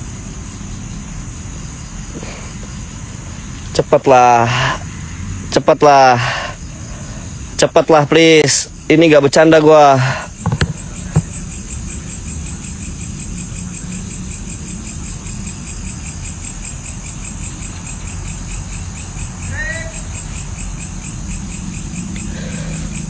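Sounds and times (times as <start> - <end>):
crickets chirping: 0.0 - 23.0
low wind rumble: 0.0 - 23.0
short arching pitched call: 19.4 - 20.3.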